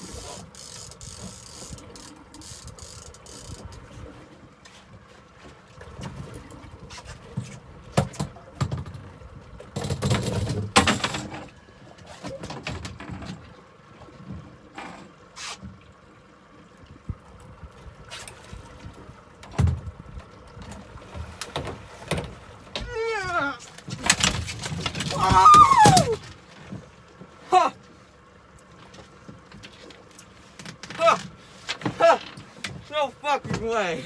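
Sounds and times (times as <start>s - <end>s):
boat hull knocking and rattling: 5.0s - 15.8s, 17.0s - 27.4s, 28.7s - 34.0s.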